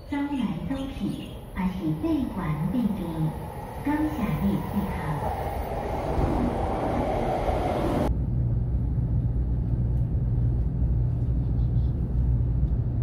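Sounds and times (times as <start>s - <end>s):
train rushing along platform: 0.0s - 13.0s
low steady rumble: 8.1s - 13.0s.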